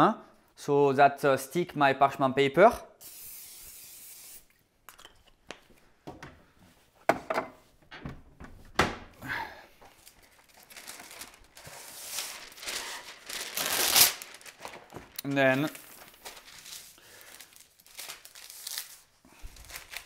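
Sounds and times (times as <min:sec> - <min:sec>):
aerosol spray hissing: 0:03.0 - 0:04.5
cupboard door handled: 0:07.1 - 0:09.2
knocks and clunks: 0:07.1 - 0:09.2
paper rustling: 0:09.8 - 0:20.0.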